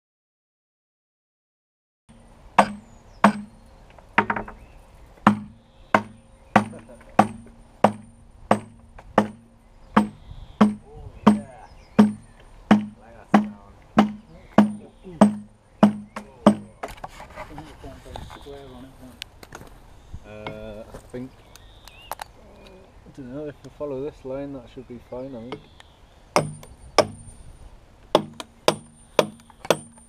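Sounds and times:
axe chopping log: 2.6s - 3.6s, 5.2s - 9.4s, 10.0s - 16.8s, 26.4s - 27.3s, 28.2s - 30.0s.

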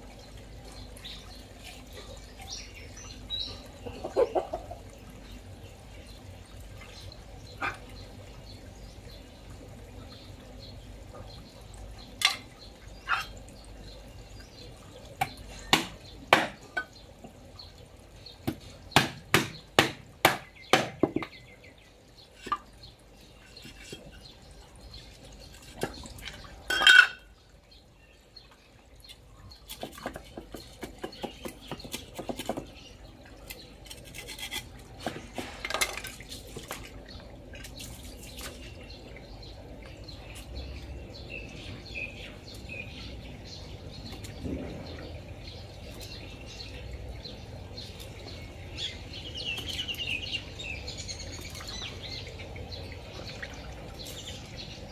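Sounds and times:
hammer knocking knife through fish: 18.5s - 21.3s
knife scraping and cutting: 33.8s - 35.6s.

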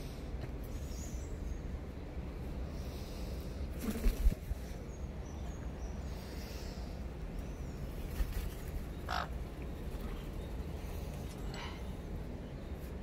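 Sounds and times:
parrot squawk: 9.1s - 9.3s.

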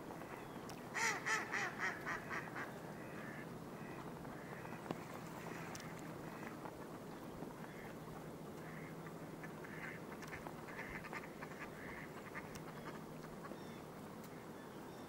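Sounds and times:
steady low hum: 0.0s - 15.0s
ducks quacking: 0.3s - 6.6s, 7.6s - 8.0s, 8.6s - 13.6s.

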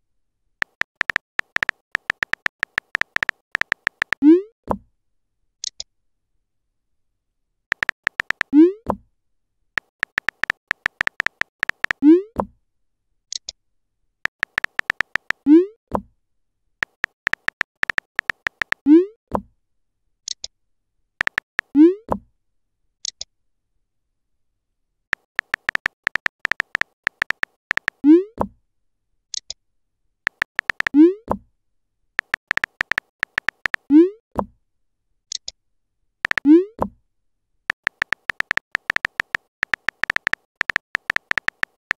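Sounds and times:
keyboard typing clicks: 0.6s - 4.2s, 7.7s - 8.5s, 9.8s - 12.0s, 14.3s - 15.4s, 16.8s - 18.8s, 21.2s - 21.7s, 25.1s - 28.0s, 30.3s - 31.0s, 32.2s - 33.9s, 36.2s - 36.5s, 37.7s - 41.9s.

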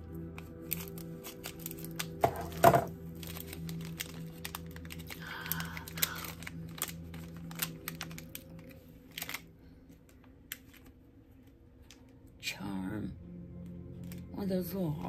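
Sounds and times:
soft spa music: 0.0s - 15.0s
plastic packaging crinkling: 0.2s - 12.1s.

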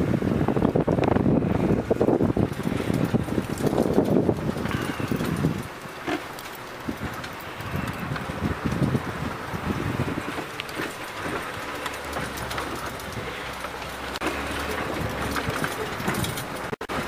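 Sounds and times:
vehicle engine running: 0.0s - 17.0s
vehicle knocks and rattles: 1.9s - 17.0s.

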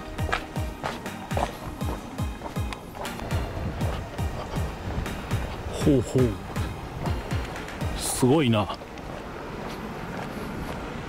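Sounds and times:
kick drum beat: 0.0s - 8.2s
light percussion: 0.0s - 8.8s.

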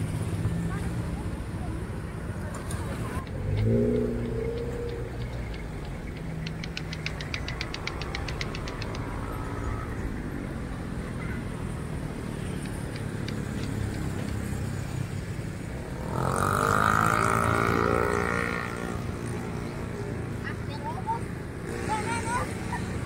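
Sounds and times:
road traffic rumble: 0.0s - 23.0s
motor vehicle passing close: 2.3s - 20.0s.

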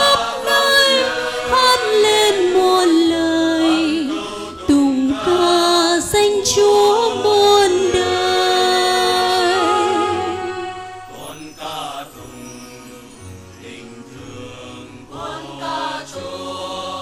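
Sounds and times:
woman singing into a microphone: 0.0s - 11.0s
women's choir singing a hymn: 0.0s - 12.3s, 13.6s - 17.0s.

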